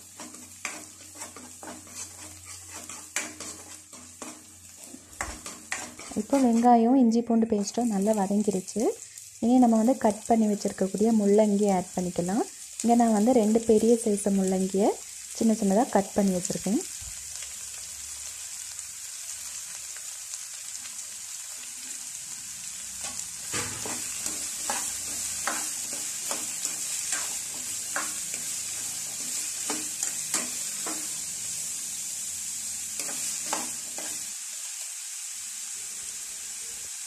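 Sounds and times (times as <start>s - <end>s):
spatula scraping a pan: 0.0s - 6.8s, 23.0s - 31.8s, 32.9s - 34.3s
food sizzling in hot oil: 0.0s - 37.0s.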